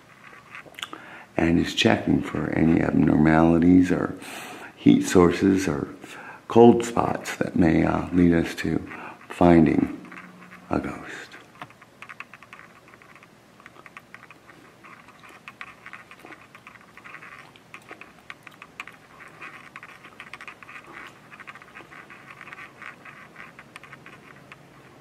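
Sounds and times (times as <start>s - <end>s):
faint rapid clicking: 10.0s - 25.0s.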